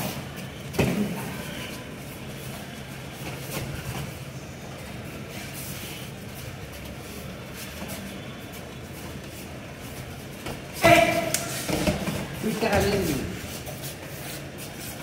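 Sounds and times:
indoor sports hall hum: 0.0s - 15.0s.

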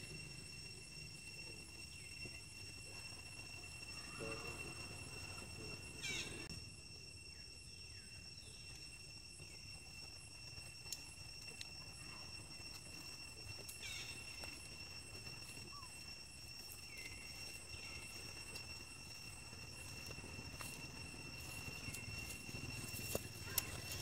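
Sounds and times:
high-pitched insect drone: 0.0s - 24.0s.

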